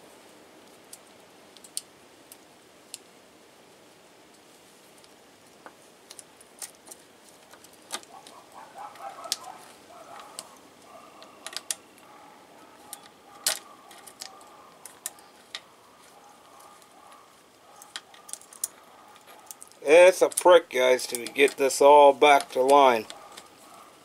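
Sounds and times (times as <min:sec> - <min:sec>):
small metal clicks and taps: 0:11.2 - 0:11.8, 0:12.9 - 0:15.7, 0:17.8 - 0:20.4, 0:21.1 - 0:21.6.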